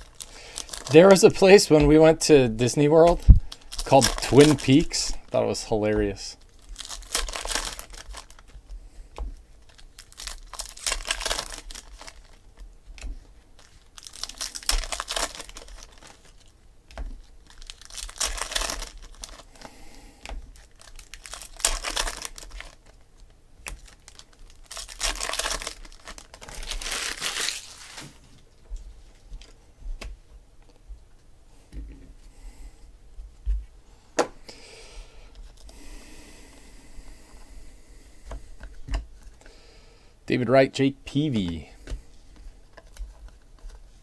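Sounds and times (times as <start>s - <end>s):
wrappers crinkling and tearing: 0.0s - 8.6s, 9.6s - 12.7s, 13.5s - 16.5s, 17.1s - 19.6s, 20.4s - 28.4s.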